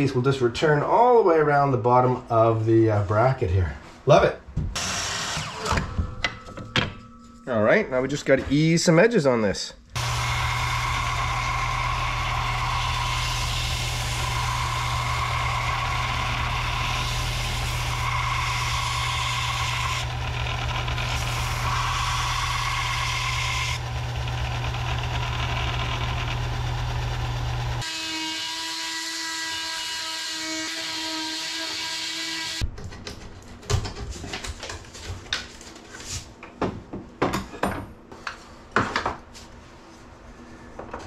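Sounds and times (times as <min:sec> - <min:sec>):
power tool whining: 0:04.8 - 0:06.1, 0:10.0 - 0:30.0
belt sander running: 0:10.0 - 0:27.9.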